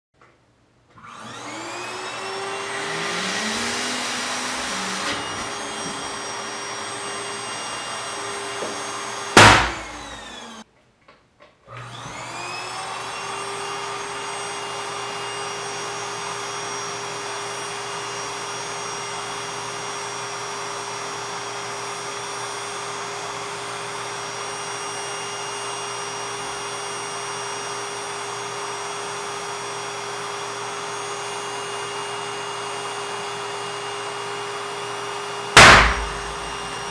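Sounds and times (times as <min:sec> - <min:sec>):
electric balloon pump humming: 0:01.3 - 0:10.6, 0:35.4 - 0:36.9
balloon bursting: 0:09.4 - 0:09.8, 0:35.6 - 0:36.9.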